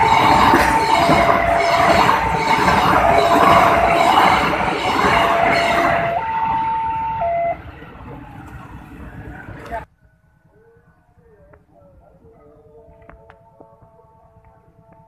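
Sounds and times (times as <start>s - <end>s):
two-note crossing warning alarm: 0.0s - 8.2s
train coaches rushing past: 0.0s - 9.9s.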